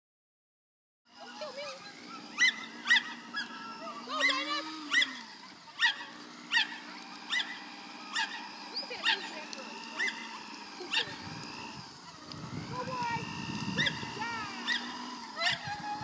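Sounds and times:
steady low hum: 1.1s - 16.0s
dog yelping: 1.2s - 11.3s, 13.7s - 16.0s.

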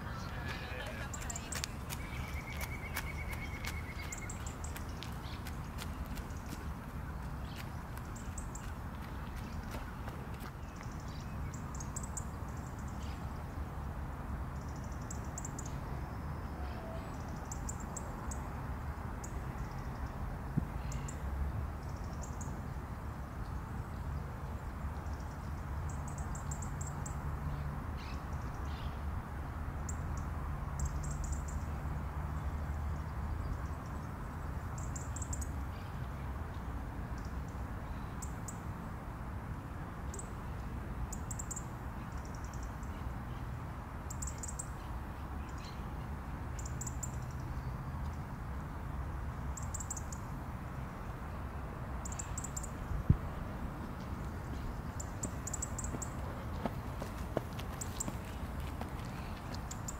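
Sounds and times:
small bird calling: 0.0s - 6.5s.

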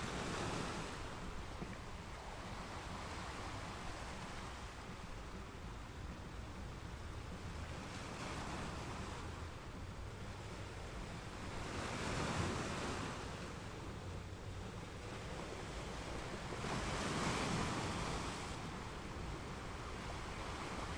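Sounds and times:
surf on pebble beach: 0.0s - 6.1s, 14.7s - 20.9s
waves breaking: 0.0s - 20.9s.

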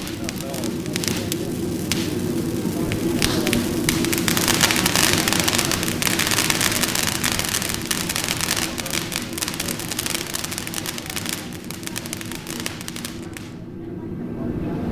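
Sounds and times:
firework hissing and crackling: 0.0s - 13.7s.

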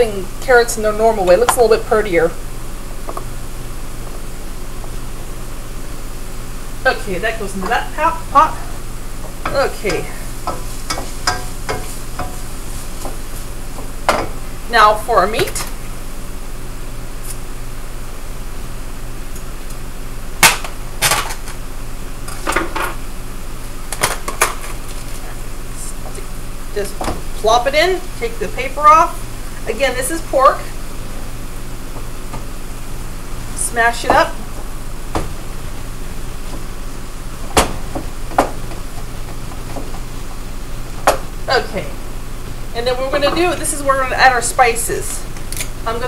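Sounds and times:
frying sizzle: 0.0s - 46.0s
wooden spoon stirring meat: 9.2s - 14.0s
spoon knocking against pan: 9.3s - 12.5s.

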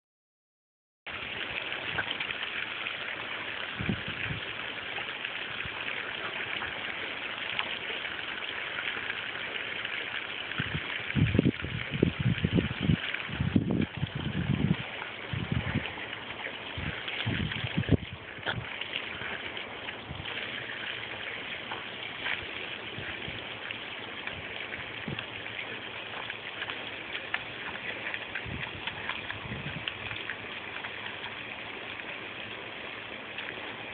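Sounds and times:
hose water spraying on mulch: 1.1s - 33.9s.

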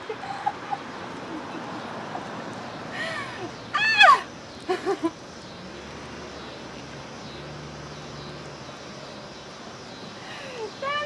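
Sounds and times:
woman laughing: 0.0s - 1.9s, 3.0s - 5.1s.

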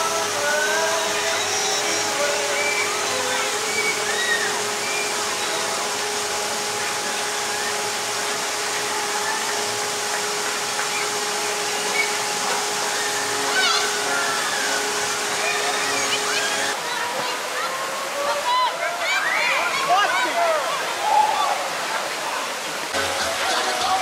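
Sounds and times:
low hum: 0.0s - 16.8s
distant voices: 0.0s - 19.8s.

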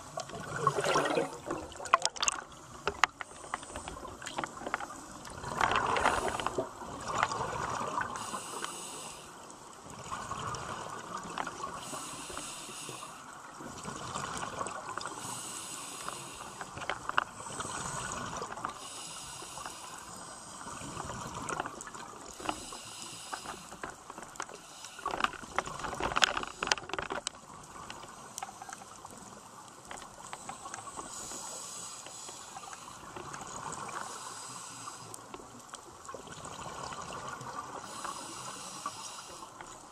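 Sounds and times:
bubbling exhales: 0.2s - 2.5s
regulator hiss on inhale: 3.2s - 4.4s, 5.9s - 6.6s, 8.1s - 9.6s, 11.8s - 13.4s, 15.0s - 21.1s, 22.3s - 25.6s, 30.2s - 33.3s, 33.9s - 35.4s, 37.7s - 39.9s.

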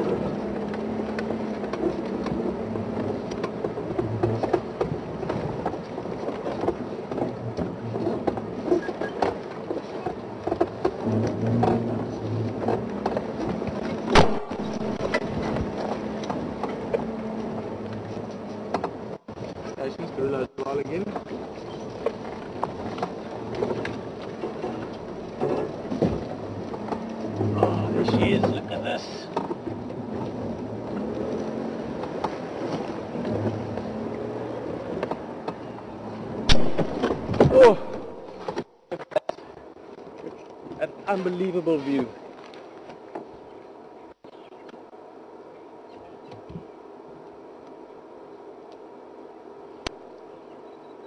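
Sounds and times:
rattles and knocks: 0.0s - 17.1s
vehicle engine at low revs: 0.0s - 51.0s.

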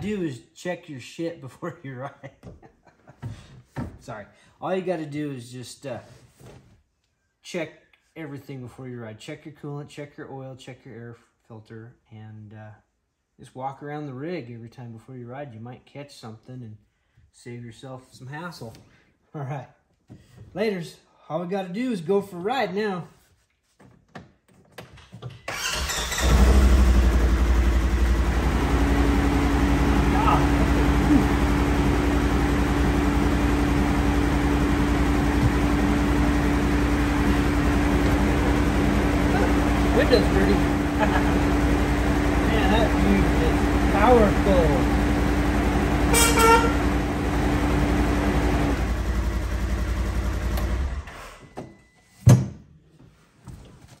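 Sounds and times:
engine cranking and idling: 25.5s - 51.4s.

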